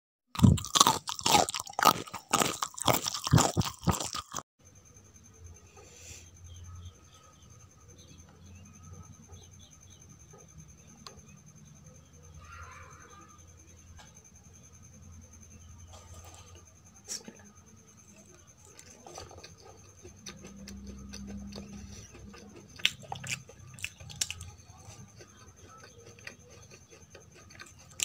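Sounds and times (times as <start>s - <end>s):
chewing and wet mouth sounds: 0.4s - 4.4s, 18.0s - 28.0s.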